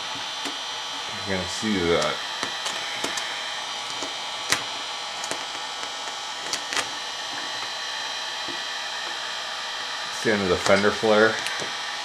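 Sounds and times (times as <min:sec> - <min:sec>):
heat gun blowing with whine: 0:00.0 - 0:12.0
vinyl film crackling: 0:01.8 - 0:07.7.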